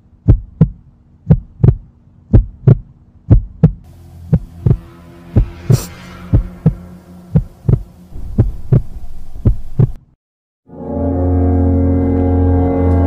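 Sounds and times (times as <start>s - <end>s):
heartbeat thumps: 0.2s - 10.1s
low steady drone: 3.8s - 10.0s, 10.7s - 13.0s.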